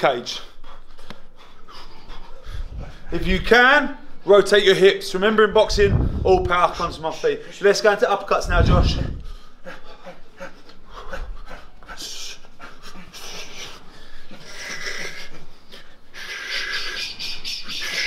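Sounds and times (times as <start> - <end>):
men breathing hard: 0.4 - 3.2, 8.9 - 18.0.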